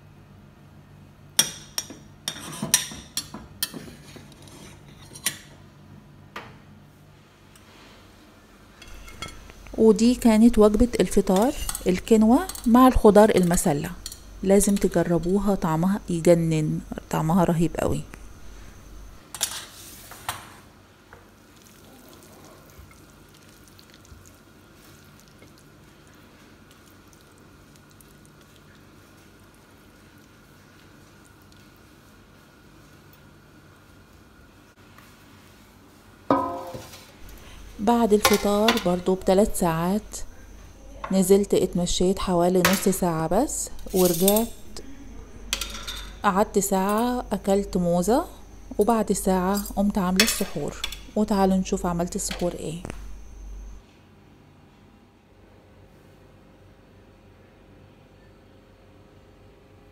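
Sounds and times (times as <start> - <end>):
spoon scraping a saucepan: 2.3 - 2.8, 8.8 - 9.5, 11.1 - 12.8, 42.6 - 44.8, 45.5 - 47.2, 48.7 - 51.2.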